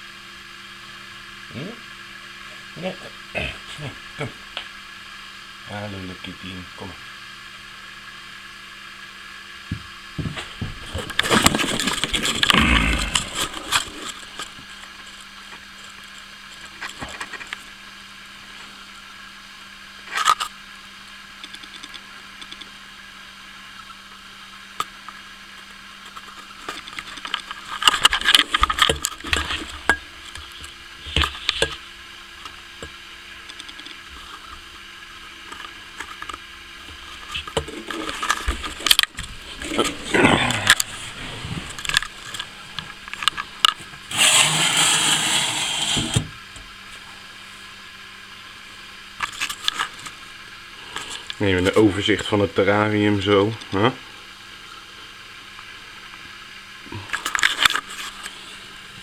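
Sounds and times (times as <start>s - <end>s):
faint steady hum: 0.0s - 59.0s
clattering and rustling at terrarium: 10.2s - 17.7s, 33.5s - 46.4s.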